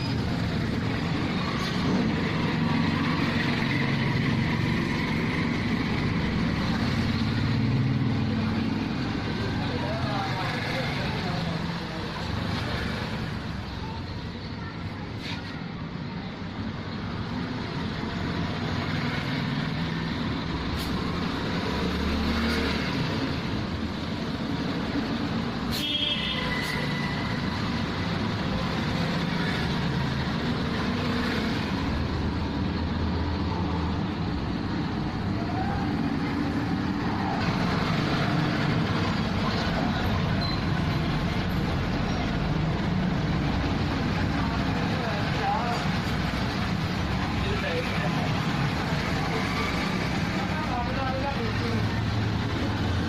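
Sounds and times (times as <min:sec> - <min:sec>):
road traffic passing: 0:00.0 - 0:53.0
short high squeal: 0:25.7 - 0:27.4.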